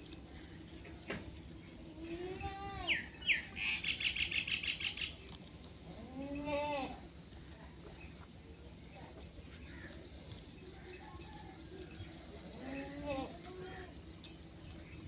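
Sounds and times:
young goat bleating: 2.0 - 3.5, 5.9 - 7.1, 12.5 - 14.0
small bird chirping: 2.0 - 6.5.

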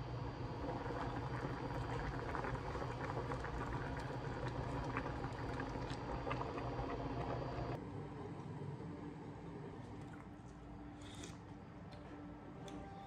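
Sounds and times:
stew boiling and bubbling: 0.0 - 7.8.

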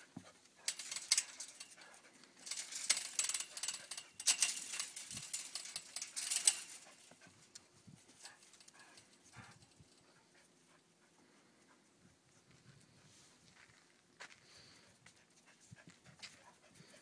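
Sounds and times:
chain-link fence rattling: 0.0 - 10.2.

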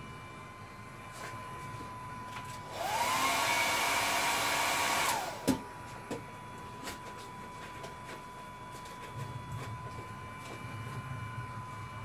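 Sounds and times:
electric blower motor whining: 1.3 - 6.6.

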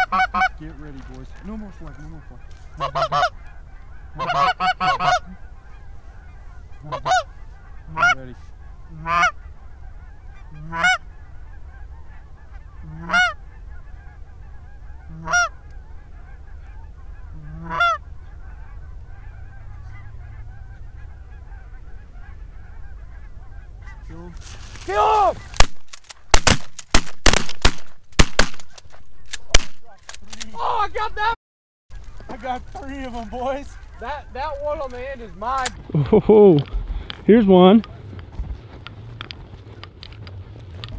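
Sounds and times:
geese honking: 0.0 - 27.0, 27.6 - 40.9
shotgun shots: 25.6 - 28.8, 29.4 - 29.9.

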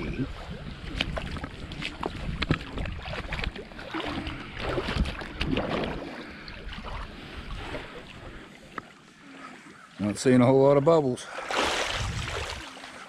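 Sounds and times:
wind on microphone: 0.0 - 3.6, 11.6 - 12.8
water sloshing and splashing: 0.0 - 13.0.

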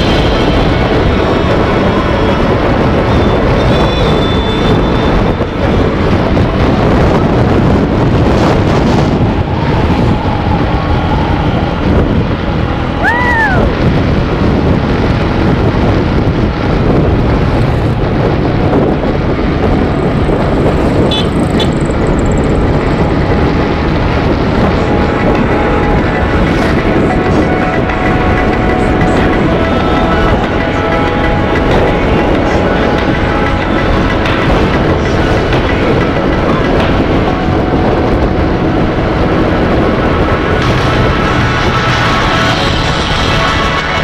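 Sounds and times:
motorcycle running: 0.0 - 44.0
wind buffeting microphone: 0.0 - 44.0.

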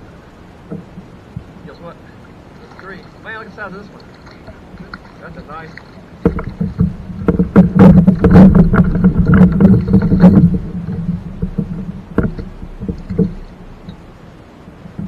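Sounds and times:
knocks on plastic kayak hull: 6.2 - 13.5.

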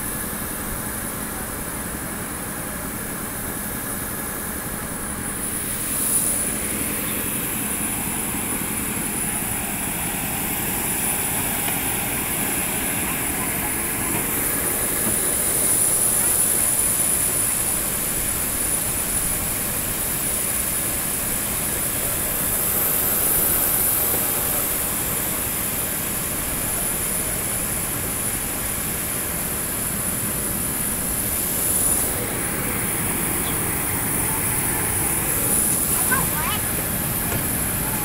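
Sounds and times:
aircraft turbine whine: 0.0 - 38.0.

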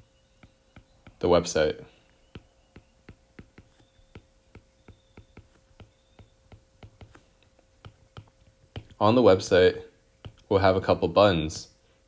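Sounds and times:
stylus tapping on glass screen: 0.4 - 1.3, 2.3 - 7.2, 7.8 - 9.0, 10.2 - 10.5.

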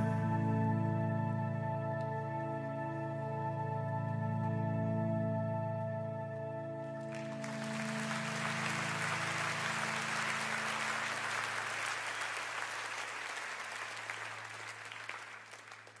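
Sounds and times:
song's final held chord: 0.0 - 12.3
crowd applauding: 7.0 - 16.0.

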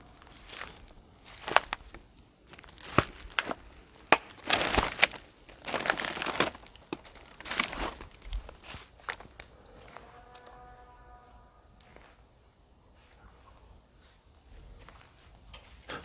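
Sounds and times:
footsteps crunching on litter: 0.0 - 10.6
sharp cracks underfoot: 0.4 - 9.6.

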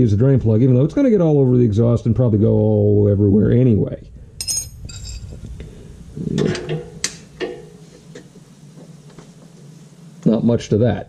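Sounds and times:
metal tool clinks and clicks: 4.4 - 5.3.

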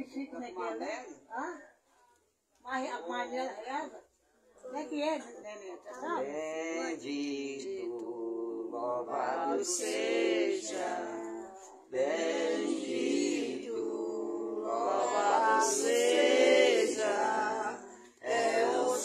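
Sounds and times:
unaccompanied hymn singing: 6.2 - 19.0.

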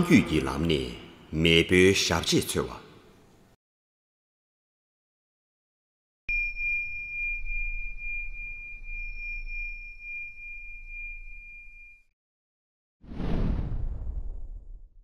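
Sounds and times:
high bell-like chime: 6.3 - 12.1.

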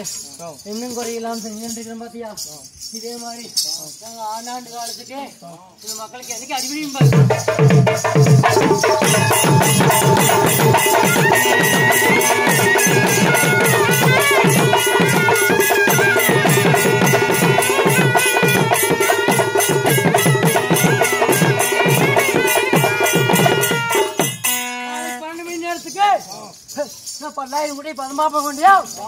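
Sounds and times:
jingling percussion: 0.0 - 29.0
drums beaten with sticks: 6.4 - 24.7
high wavering melody: 8.1 - 26.0.

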